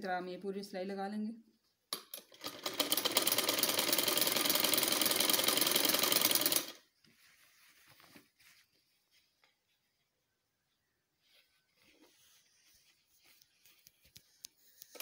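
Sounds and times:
sewing machine running: 0:02.1 - 0:06.8
fabric rustling: 0:06.9 - 0:10.3, 0:11.2 - 0:15.0.

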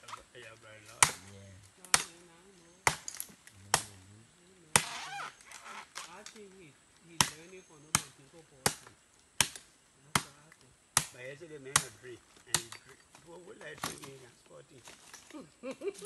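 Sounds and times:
faint voices: 0:00.0 - 0:02.8, 0:03.5 - 0:04.8
blade chopping palm fronds: 0:00.9 - 0:01.3, 0:04.8 - 0:05.1, 0:07.2 - 0:14.2.

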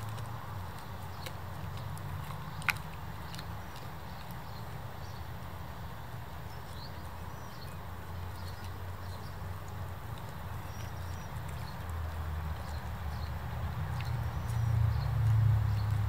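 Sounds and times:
dog chewing with crunches: 0:00.0 - 0:16.0.

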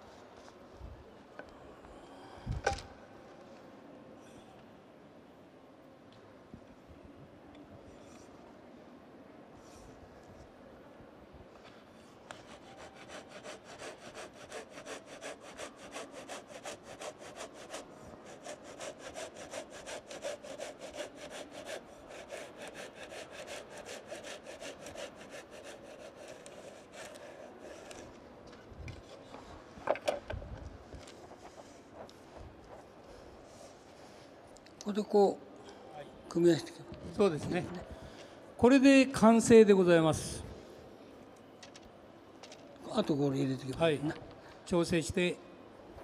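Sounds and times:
hand saw cutting wood: 0:12.3 - 0:28.0.

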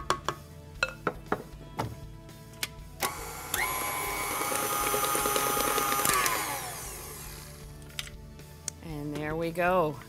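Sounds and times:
stand mixer motor whining: 0:03.0 - 0:07.6.

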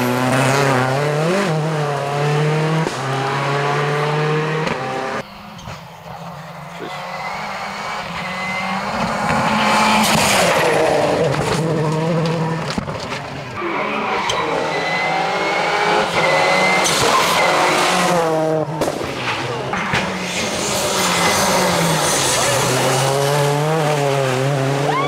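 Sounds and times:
car engine accelerating hard: 0:00.0 - 0:05.2.

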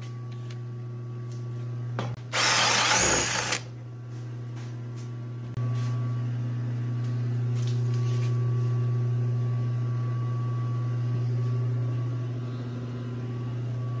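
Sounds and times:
woodshop machine humming: 0:02.3 - 0:03.7.

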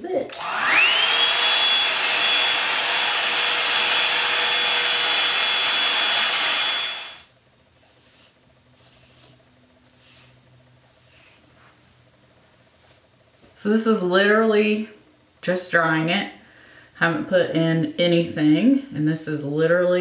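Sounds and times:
hair dryer running: 0:00.0 - 0:07.3.

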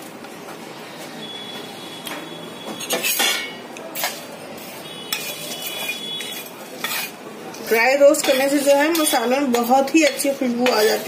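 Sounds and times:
steel spatula scraping in pan: 0:02.7 - 0:11.0.

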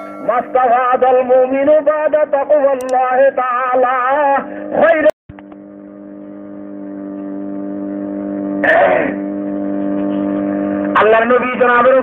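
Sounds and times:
sustained drone of held tones: 0:00.0 - 0:02.6, 0:05.4 - 0:10.4.

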